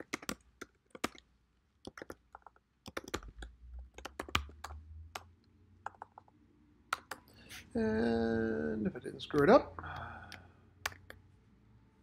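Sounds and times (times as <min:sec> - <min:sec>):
keyboard typing: 0:00.0 - 0:07.4.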